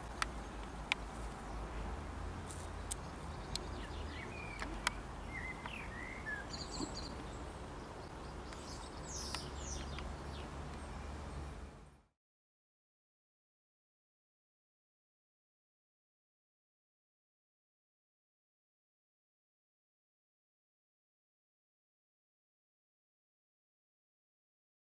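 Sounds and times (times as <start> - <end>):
small birds chirping: 0.0 - 12.1.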